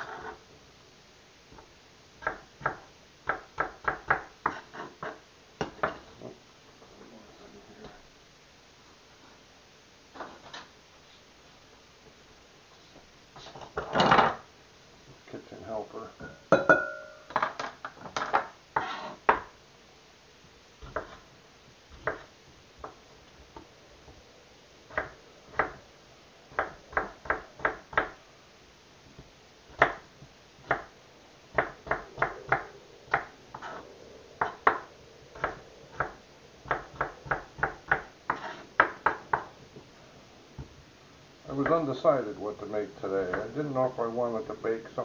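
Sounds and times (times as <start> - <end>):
ringing clink of glass bowl: 16.2 - 17.3
knife chopping on wooden board: 20.8 - 21.2, 34.4 - 39.5.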